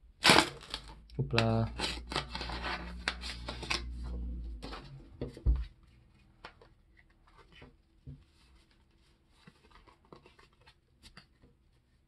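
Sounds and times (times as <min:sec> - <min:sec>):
thump: 0:05.2 - 0:05.7
paper rustling and crinkling: 0:05.5 - 0:12.0.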